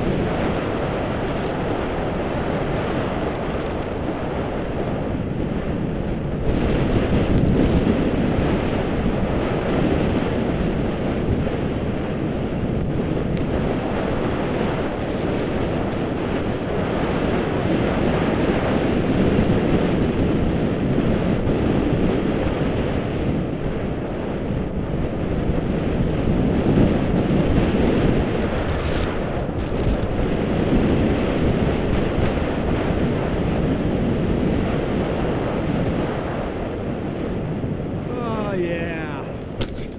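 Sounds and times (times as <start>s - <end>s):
wind rushing over microphone: 0.0s - 39.9s.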